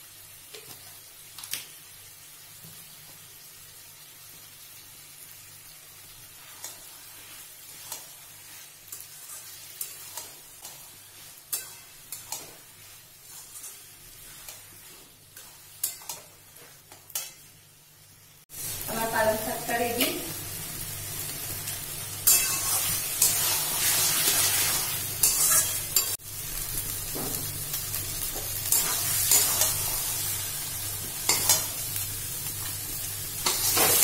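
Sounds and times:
frying sizzle: 0:00.0 - 0:34.0
spatula scraping metal pan: 0:22.2 - 0:26.2.

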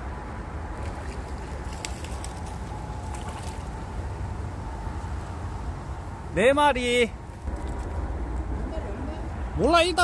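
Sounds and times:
river water running: 0:00.0 - 0:10.0.

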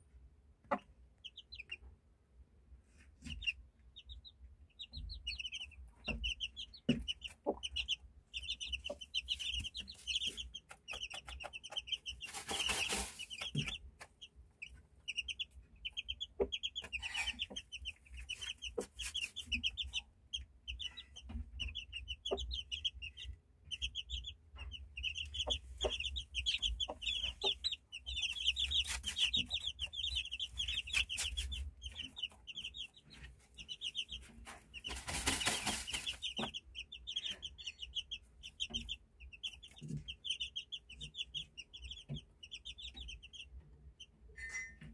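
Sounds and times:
chicks peeping: 0:00.0 - 0:44.4
rustling or flapping: 0:12.2 - 0:13.7, 0:34.9 - 0:36.4.

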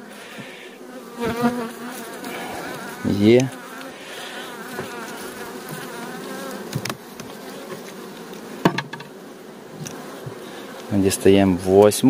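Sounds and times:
bees buzzing: 0:00.0 - 0:12.0
sharp knocks: 0:08.6 - 0:09.1.

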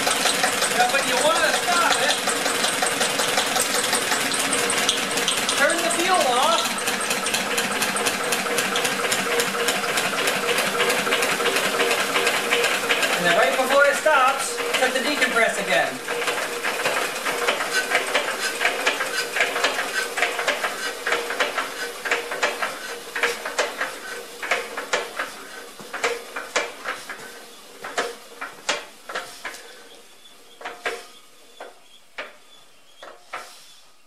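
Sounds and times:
diesel engine clattering: 0:00.0 - 0:32.4.

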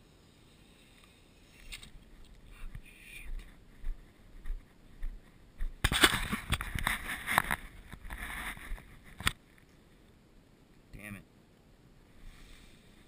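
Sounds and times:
footsteps through grass: 0:01.5 - 0:09.2.

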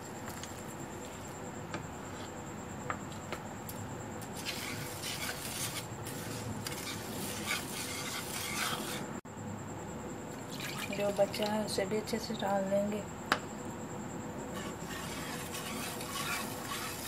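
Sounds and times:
wire whisk scraping a pan: 0:04.2 - 0:09.1, 0:14.5 - 0:17.0.

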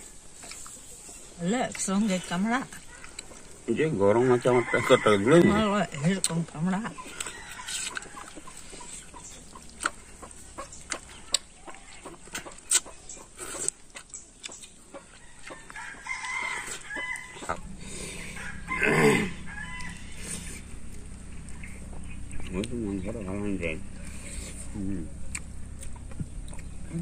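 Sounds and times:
chickens clucking: 0:00.0 - 0:27.0
people chewing: 0:00.0 - 0:27.0
chicken squawk: 0:15.8 - 0:20.7.

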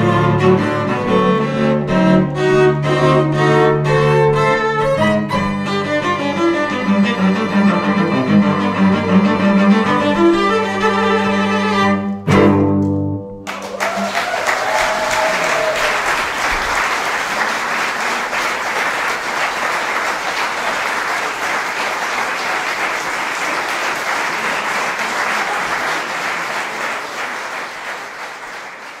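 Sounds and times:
audience applauding: 0:13.4 - 0:29.0.

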